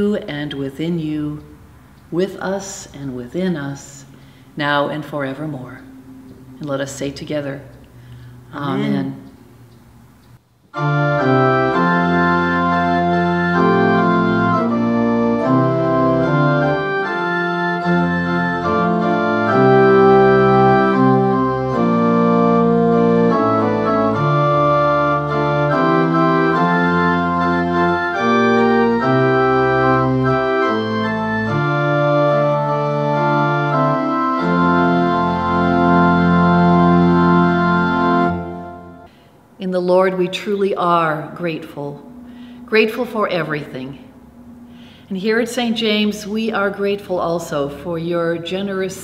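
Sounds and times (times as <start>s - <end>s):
church organ chords: 10.7s - 39.1s, 40.1s - 48.9s.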